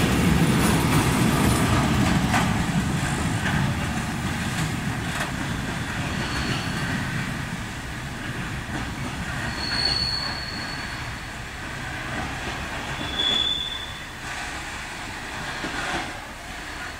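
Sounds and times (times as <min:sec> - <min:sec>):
train wheels rumbling on rail: 0:00.0 - 0:16.9
high-pitched wheel squeals: 0:06.1 - 0:07.0, 0:09.4 - 0:11.3, 0:12.8 - 0:14.2.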